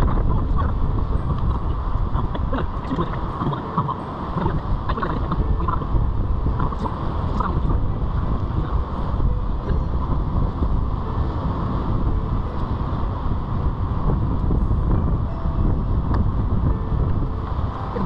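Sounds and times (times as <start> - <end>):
river rushing: 0.0 - 18.0
wind buffeting microphone: 0.0 - 18.0.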